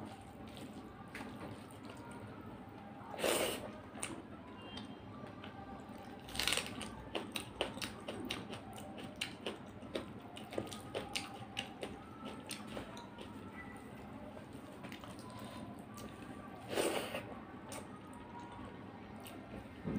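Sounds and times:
chewing with wet mouth clicks: 6.0 - 13.7.

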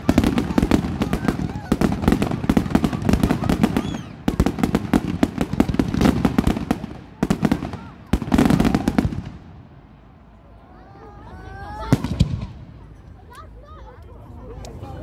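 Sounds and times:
fireworks bangs and crackles: 0.0 - 10.2, 11.7 - 13.0.

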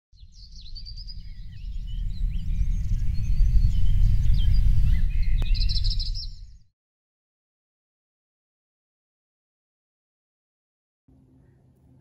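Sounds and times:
songbirds chirping and trilling: 0.2 - 6.7
low rumble: 0.4 - 6.7.

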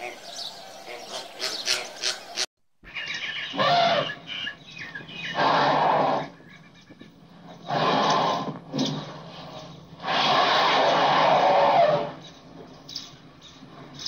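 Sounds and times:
small birds chirping: 0.0 - 7.8, 12.2 - 14.0
flamingos calling: 0.0 - 8.2
rushing bursts: 9.3 - 12.2.

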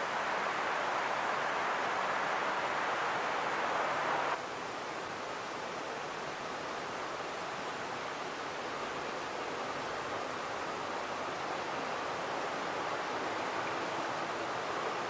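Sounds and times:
rushing wind: 0.0 - 4.4.

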